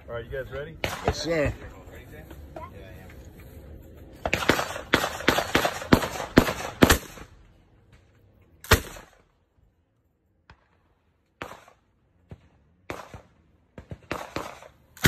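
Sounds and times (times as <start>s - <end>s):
machine gun firing: 0.8s - 1.5s, 4.2s - 7.4s, 8.7s - 9.2s, 12.9s - 14.8s.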